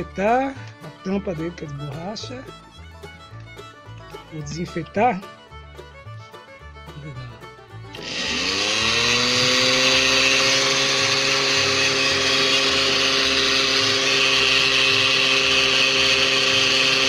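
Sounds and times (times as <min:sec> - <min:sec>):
electric blender whining: 0:07.9 - 0:17.0.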